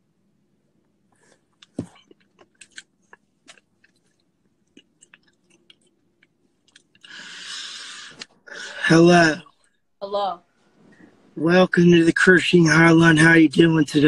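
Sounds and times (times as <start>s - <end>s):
faint clicks and ticks: 0.8s - 7.2s
steady hiss: 7.1s - 9.4s.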